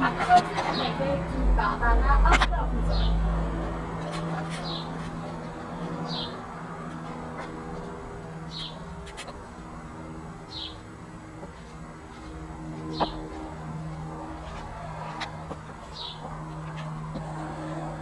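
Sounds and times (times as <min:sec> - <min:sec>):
low hum: 0:00.0 - 0:18.0
bird chirping: 0:05.9 - 0:06.5, 0:08.5 - 0:08.8, 0:10.4 - 0:10.9, 0:12.8 - 0:13.4.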